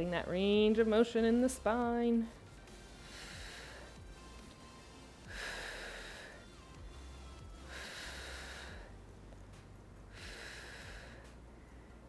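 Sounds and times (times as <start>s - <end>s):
faint background music: 0.0s - 12.0s
person breathing heavily: 3.0s - 4.3s, 5.2s - 6.7s, 7.4s - 9.0s, 10.1s - 11.4s.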